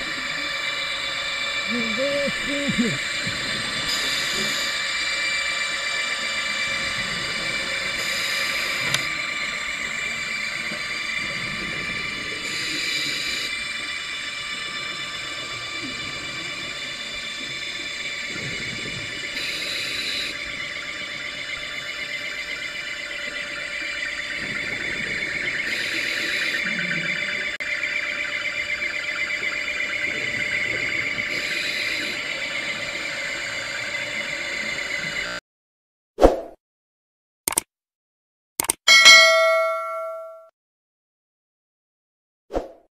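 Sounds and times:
underwater thrusters whining: 0:00.0 - 0:35.4.

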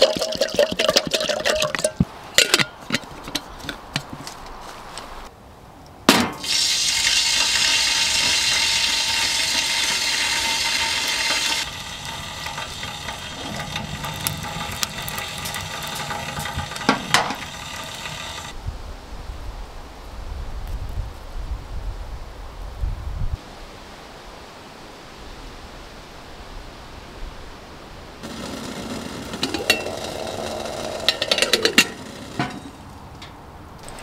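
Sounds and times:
loud steady hiss: 0:06.1 - 0:18.6, 0:23.4 - 0:33.0
wood fire crackling in stove: 0:06.4 - 0:18.5, 0:28.2 - 0:34.0
fire snaps: 0:11.7 - 0:18.5
kettle lid metal clank: 0:29.3 - 0:32.8.

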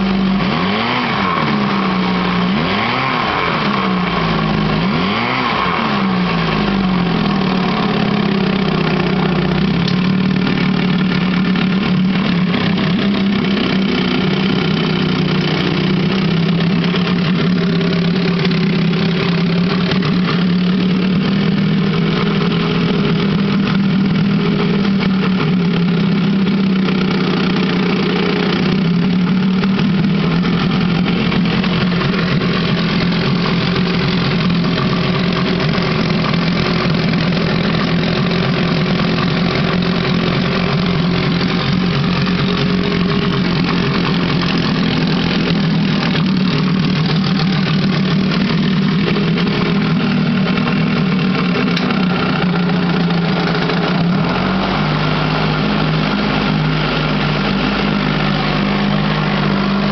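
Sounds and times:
outboard motor running: 0:00.0 - 0:59.9
propeller churning water: 0:24.2 - 0:59.9.

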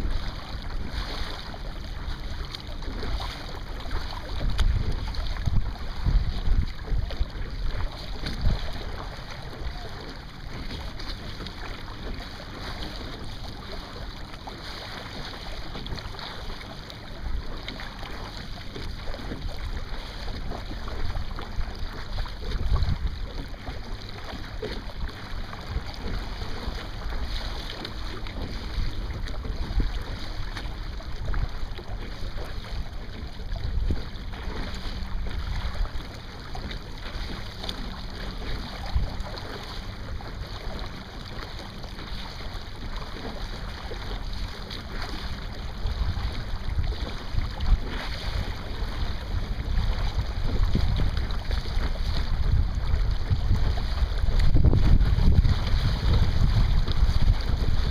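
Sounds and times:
wind on microphone: 0:00.0 - 0:13.7, 0:15.2 - 0:57.9
water splashing along hull: 0:00.0 - 0:57.9.

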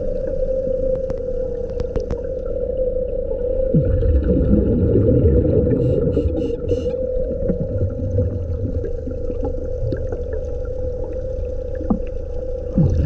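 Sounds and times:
underwater hum: 0:00.0 - 0:13.0
regulator bubbles rushing: 0:03.7 - 0:13.0.

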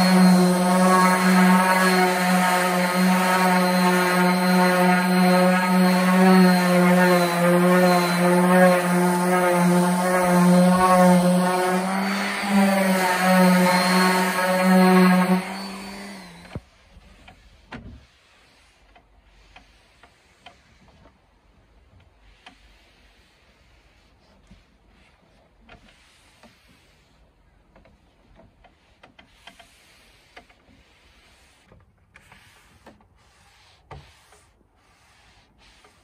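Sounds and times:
power tool motor running: 0:00.0 - 0:16.6
cloth wiping wooden tabletop: 0:22.6 - 0:27.3, 0:28.8 - 0:36.0.

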